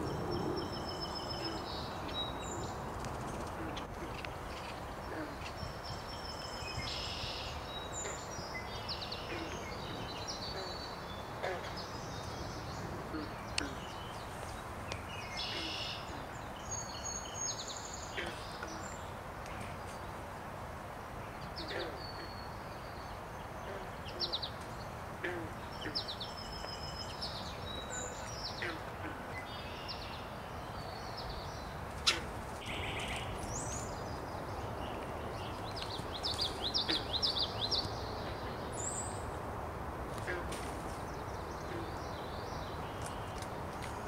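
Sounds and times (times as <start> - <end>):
small birds chirping: 0.0 - 20.2, 21.3 - 39.4, 40.1 - 44.0
background hiss: 0.0 - 44.0.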